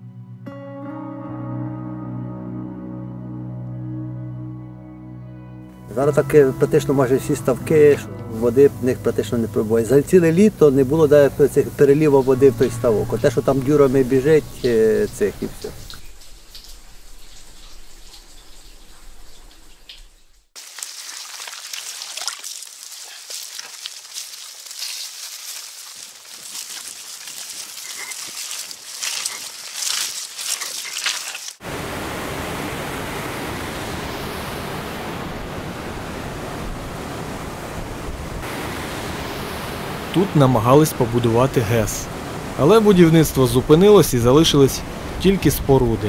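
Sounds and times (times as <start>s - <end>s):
bicycle rolling over dry leaves: 20.6s - 31.6s.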